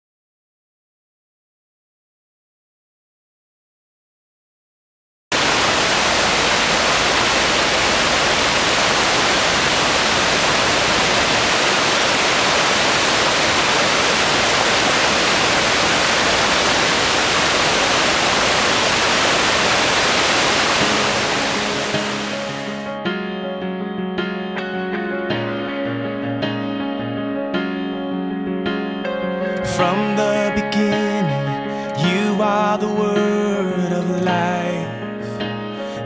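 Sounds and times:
waterfall rushing: 5.3s - 22.9s
soft guitar music: 20.8s - 36.0s.

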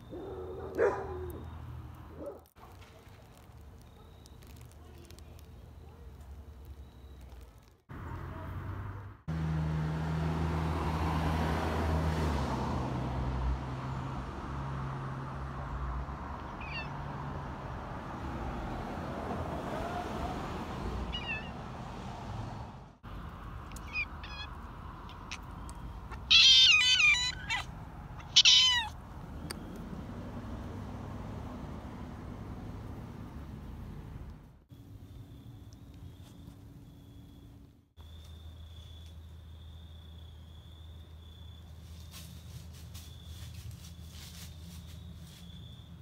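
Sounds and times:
cat meowing: 16.4s - 17.0s, 21.1s - 21.6s, 23.7s - 25.5s, 26.1s - 29.0s.

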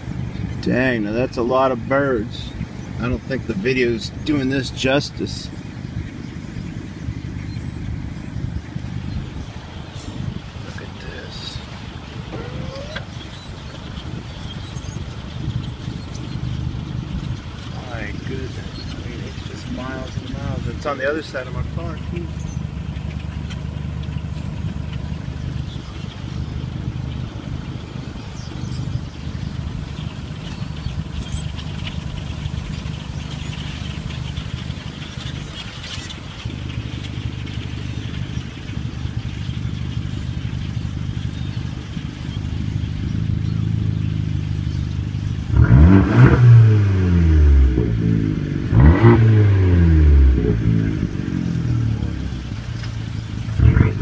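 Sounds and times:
vehicle engine idling: 0.0s - 54.0s
vehicles passing by: 0.0s - 54.0s.

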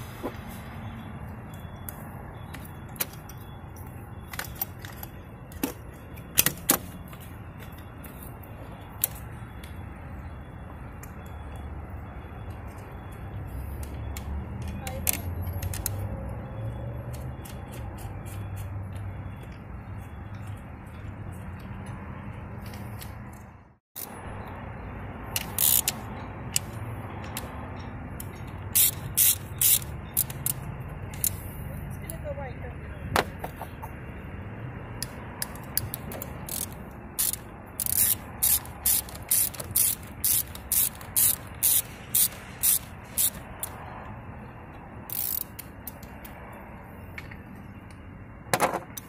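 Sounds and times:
ratchet wrench clicking: 25.3s - 27.5s, 28.2s - 31.4s, 35.0s - 43.8s, 45.0s - 46.4s.

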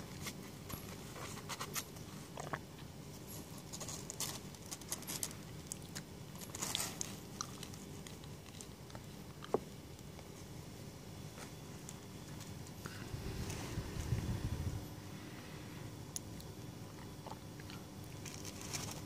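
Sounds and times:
kittens scratching on cardboard: 0.1s - 2.0s.

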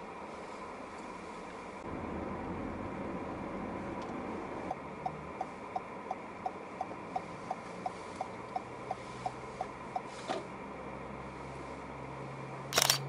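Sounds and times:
car cabin road noise: 0.0s - 13.0s
turn signal clicking: 4.0s - 10.1s.

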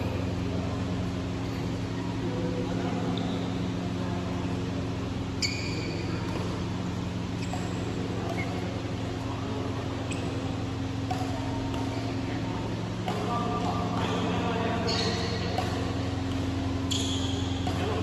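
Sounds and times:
fan humming: 0.0s - 18.0s
sharp high-pitched squeak: 5.4s - 6.0s, 16.9s - 17.6s.

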